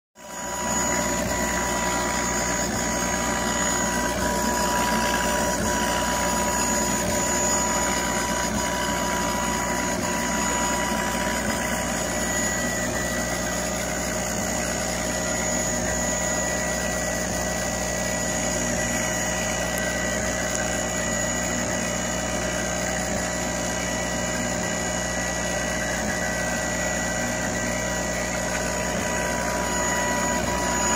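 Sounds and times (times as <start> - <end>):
laser engraver humming and whining: 0.2 - 30.9.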